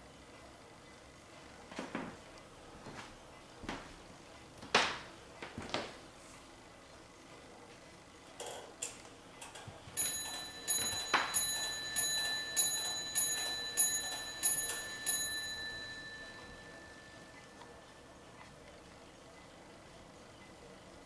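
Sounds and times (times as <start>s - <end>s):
clock movement clicks: 8.4s - 17.7s
mantel clock striking: 9.4s - 18.1s.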